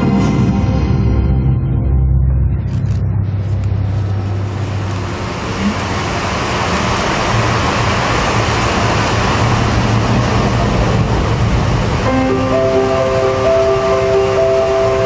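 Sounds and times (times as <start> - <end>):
rain sound effect: 3.3 - 15.0
low held musical note: 11.9 - 15.0.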